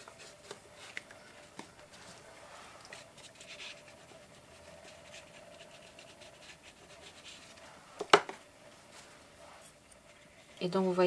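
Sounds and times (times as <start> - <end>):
pastel scratching on paper: 1.9 - 8.2.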